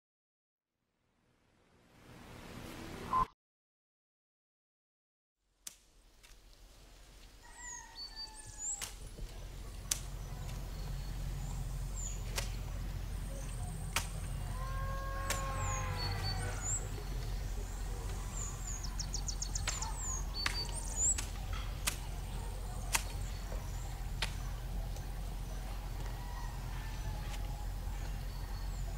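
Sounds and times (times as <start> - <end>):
birds chirping: 6.5 - 28.9
steady low rumble: 9.0 - 28.9
sharp clicks: 9.8 - 10.6
animal call rising and falling: 14.5 - 16.9.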